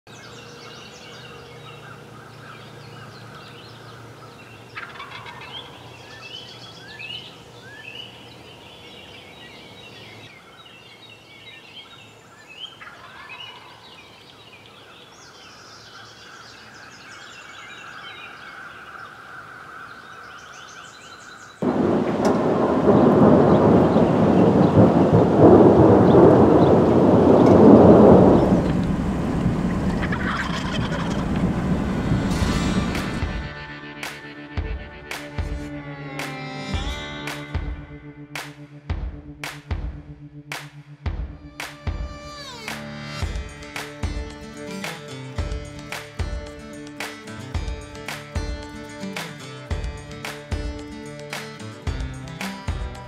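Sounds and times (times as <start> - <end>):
songbirds chirping: 0.1 - 32.3
turkey gobbling: 4.7 - 6.2, 12.8 - 13.9, 29.7 - 31.9
heavy rain: 21.6 - 33.5
rumbling thunder: 21.6 - 33.5.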